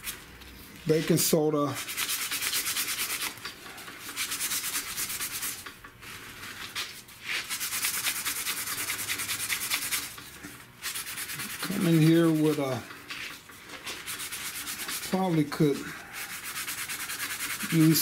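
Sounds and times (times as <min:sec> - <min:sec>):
scratchy rubbing strokes: 0:00.8 - 0:18.0.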